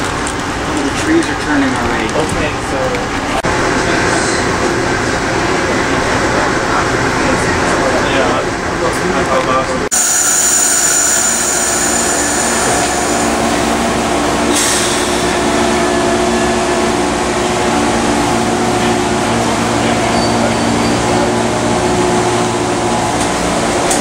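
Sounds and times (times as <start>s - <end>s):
thin high whine: 9.9s - 19.0s
train rumble and hum: 9.9s - 24.0s.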